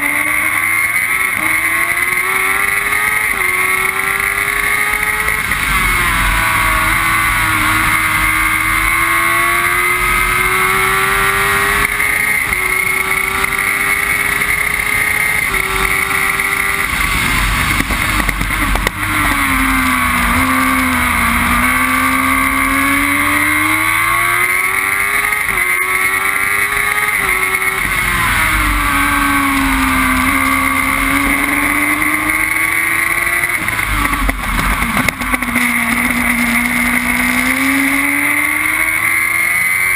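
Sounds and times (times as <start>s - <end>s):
race car engine shifting gears: 0.0s - 39.9s
wind and tyre noise: 0.0s - 39.9s.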